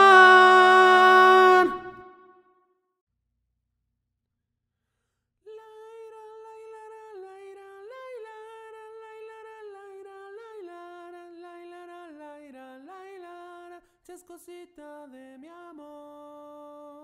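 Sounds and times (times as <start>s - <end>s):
person humming long notes: 0.0s - 2.1s.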